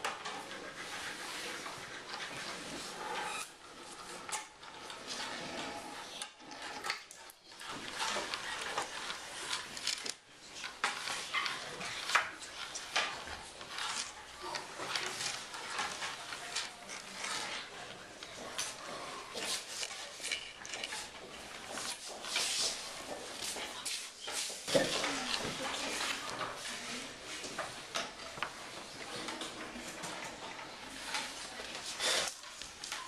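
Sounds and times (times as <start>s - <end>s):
pencil scratching on paper: 0.1s - 4.0s.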